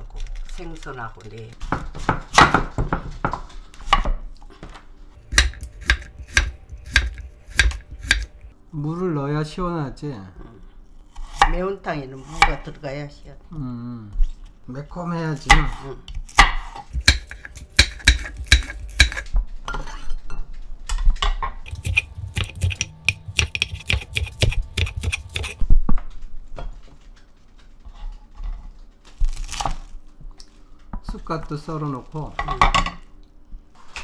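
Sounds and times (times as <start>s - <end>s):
knife chopping on wooden board: 5.2s - 8.5s, 15.5s - 19.3s, 21.7s - 25.6s.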